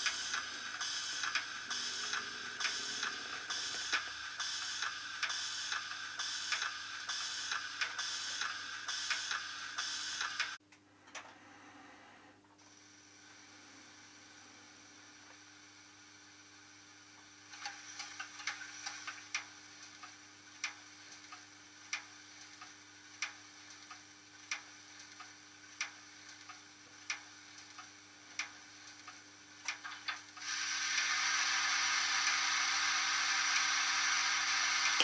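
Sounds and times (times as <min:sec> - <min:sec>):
steam hissing: 0:00.0 - 0:10.6, 0:30.4 - 0:35.0.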